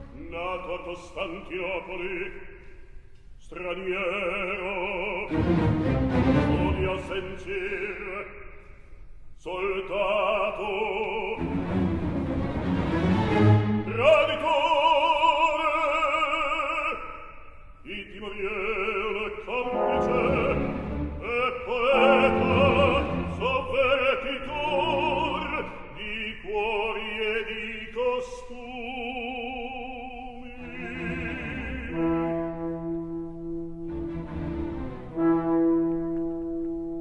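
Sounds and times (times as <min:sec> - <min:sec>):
baritone singing with vibrato: 0:00.0 - 0:02.6, 0:03.4 - 0:08.6, 0:09.4 - 0:11.8, 0:13.4 - 0:33.3
orchestra playing: 0:05.3 - 0:07.5, 0:11.4 - 0:14.0, 0:19.5 - 0:25.8, 0:30.6 - 0:37.0.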